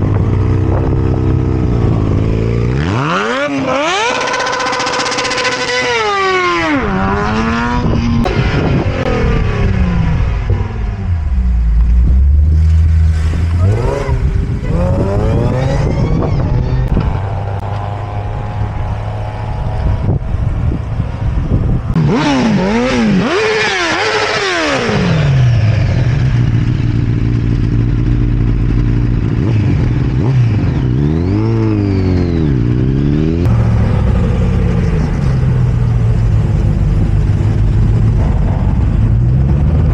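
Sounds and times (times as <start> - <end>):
motorcycle engine revving: 0.0 - 39.9
vehicle engines pulling away: 0.0 - 39.9.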